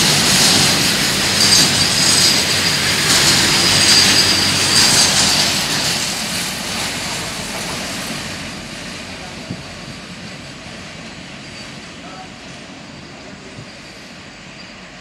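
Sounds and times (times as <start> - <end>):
train wheels rattling on rail: 0.0 - 15.0
high ringing tone: 1.4 - 5.7.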